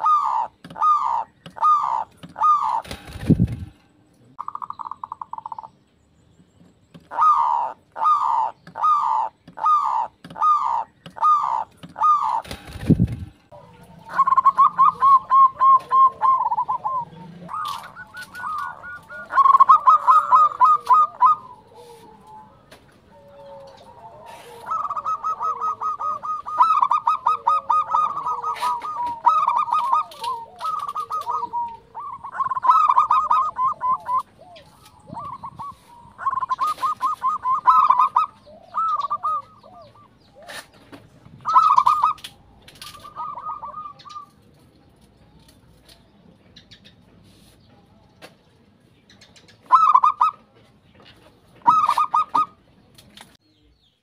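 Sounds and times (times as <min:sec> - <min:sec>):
doves cooing: 0:00.0 - 0:05.8, 0:07.0 - 0:44.7, 0:49.6 - 0:52.6.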